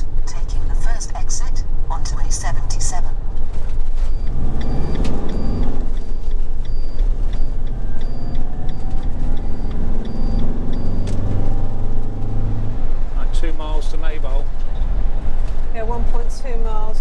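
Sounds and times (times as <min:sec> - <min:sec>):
motorhome engine: 0:00.0 - 0:17.0
road noise: 0:00.0 - 0:17.0
turn indicator ticking: 0:03.2 - 0:13.6.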